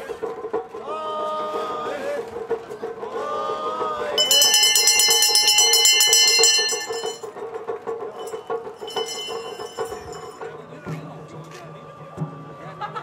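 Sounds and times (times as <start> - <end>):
steady pulsing beat: 4.2 - 7.2
rapid metallic bell ringing: 4.2 - 7.3, 8.2 - 10.4.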